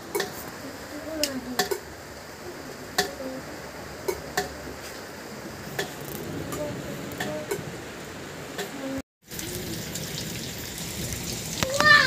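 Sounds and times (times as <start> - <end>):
water dripping into metal pots: 0.0 - 0.4, 1.2 - 1.9, 4.0 - 4.6, 8.6 - 12.0.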